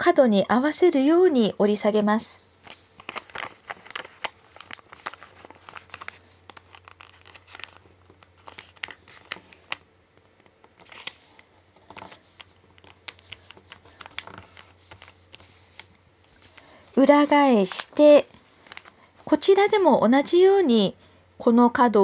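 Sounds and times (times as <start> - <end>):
paper being folded: 2.6 - 20.0.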